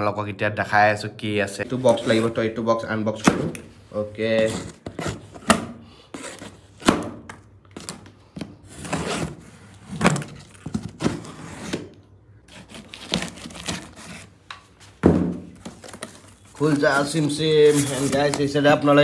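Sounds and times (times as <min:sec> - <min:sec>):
packaging rustling: 0:07.7 - 0:11.9, 0:12.5 - 0:18.8
cardboard box knocks and thuds: 0:15.0 - 0:15.6.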